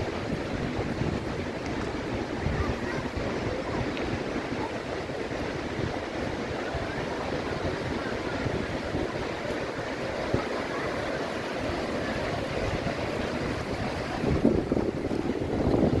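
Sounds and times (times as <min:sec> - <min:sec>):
waterfall roaring: 0:00.0 - 0:16.0
wind rumble on microphone: 0:00.0 - 0:16.0.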